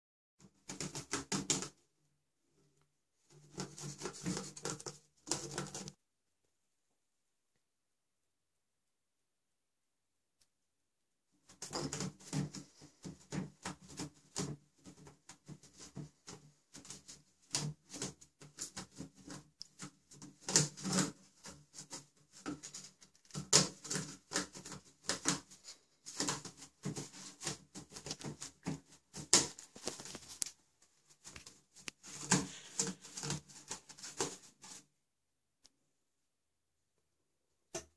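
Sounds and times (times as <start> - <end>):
toilet paper rustling: 14.9 - 34.8.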